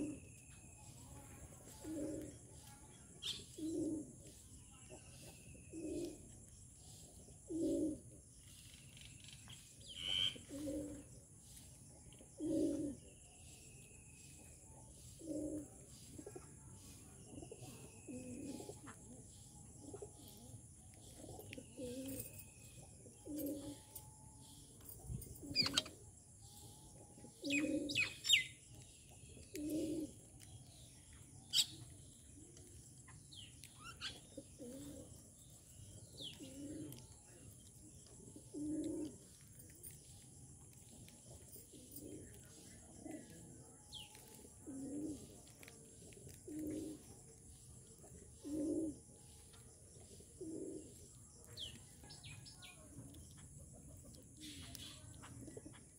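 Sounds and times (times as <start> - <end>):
dove cooing: 0.0 - 0.3, 1.4 - 2.6, 3.2 - 4.3, 5.2 - 6.3, 7.1 - 8.2, 10.1 - 11.2, 12.2 - 13.2, 14.4 - 24.0, 24.6 - 28.6, 29.2 - 30.8, 31.5 - 40.0, 40.9 - 49.4, 50.0 - 53.0, 53.7 - 55.9
small birds chirping: 0.0 - 55.9.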